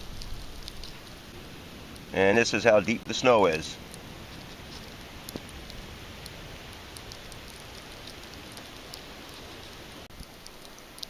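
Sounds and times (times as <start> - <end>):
faint ticks: 0.0 - 1.2, 3.9 - 11.0
hiss of falling snow and ice: 0.0 - 11.0.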